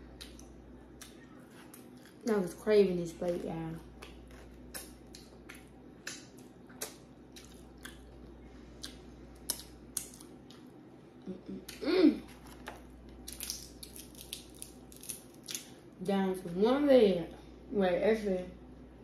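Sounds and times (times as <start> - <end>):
crab shells cracking: 12.6 - 15.7.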